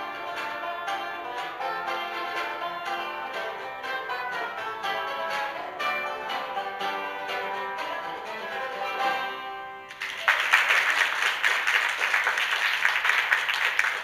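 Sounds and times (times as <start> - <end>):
bluegrass band playing: 0.0 - 10.1
audience applause: 9.9 - 14.0.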